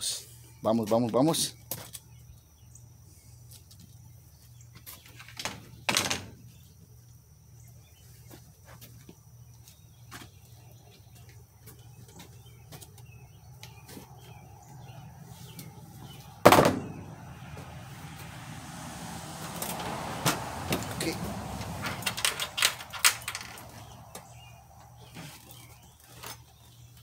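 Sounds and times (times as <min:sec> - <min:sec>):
loud thuds: 0:16.4 - 0:18.3.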